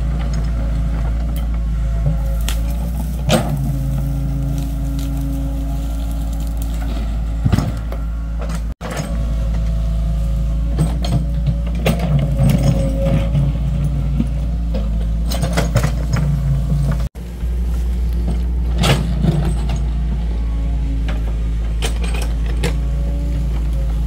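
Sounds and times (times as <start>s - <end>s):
diesel engine under load: 0.0s - 24.0s
metallic clanks and knocks: 10.7s - 17.1s.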